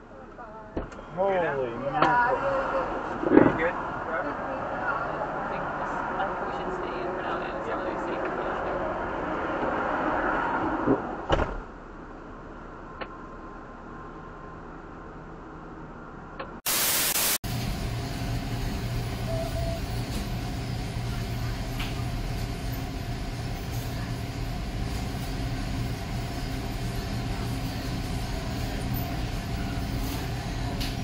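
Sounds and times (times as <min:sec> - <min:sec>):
loud burst of static: 0:16.7 - 0:17.4
steady hiss: 0:16.7 - 0:17.4.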